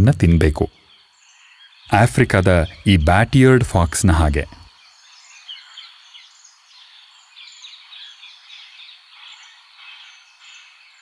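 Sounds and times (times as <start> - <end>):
background hiss: 0.0 - 11.0
small birds chirping: 0.0 - 11.0.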